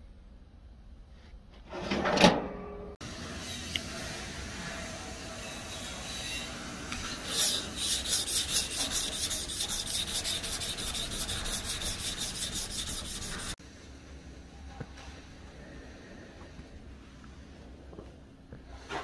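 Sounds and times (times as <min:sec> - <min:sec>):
pad scrubbing steel blade: 0:07.1 - 0:13.6.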